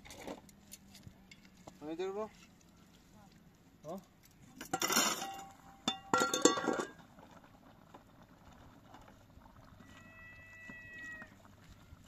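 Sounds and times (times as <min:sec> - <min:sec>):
dishes and utensils clinking: 0:04.6 - 0:07.0.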